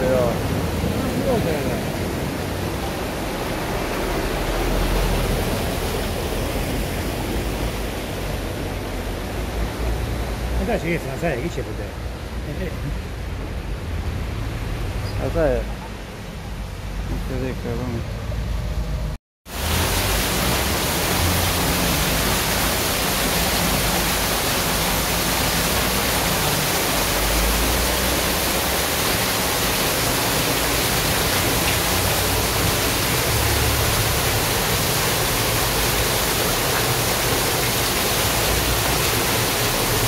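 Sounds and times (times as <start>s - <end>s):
water gushing and splashing: 0.0s - 11.0s, 19.5s - 40.0s.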